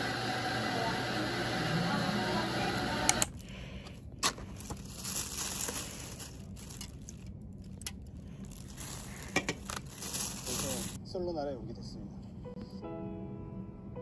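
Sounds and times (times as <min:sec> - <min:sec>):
paper and plastic rustling: 0:03.3 - 0:11.0.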